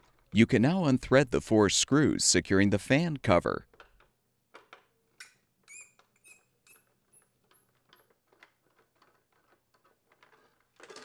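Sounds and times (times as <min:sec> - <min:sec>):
screws squeaking: 0:05.2 - 0:11.0.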